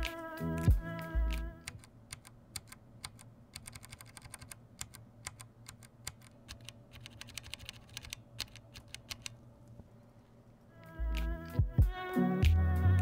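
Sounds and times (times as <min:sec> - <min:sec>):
keyboard switches clicking: 0:01.0 - 0:09.4.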